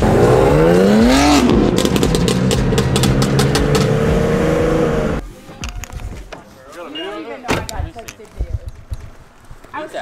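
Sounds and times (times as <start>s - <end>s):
car engine revving: 0.0s - 5.2s
exhaust popping and crackling: 0.0s - 5.2s.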